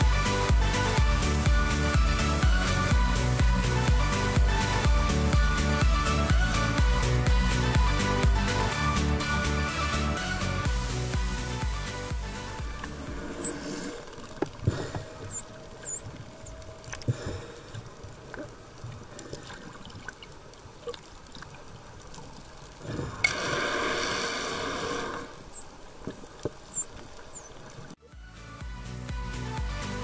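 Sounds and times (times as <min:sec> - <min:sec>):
dolphin clicks: 0:12.7 - 0:19.4
dolphin whistles: 0:12.9 - 0:14.0, 0:14.8 - 0:16.6, 0:23.2 - 0:27.5.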